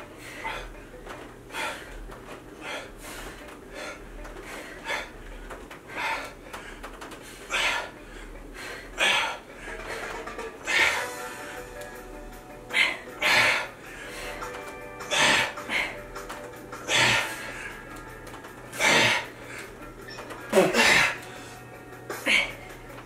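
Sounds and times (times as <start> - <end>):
person breathing hard: 0.0 - 11.7, 12.5 - 23.0.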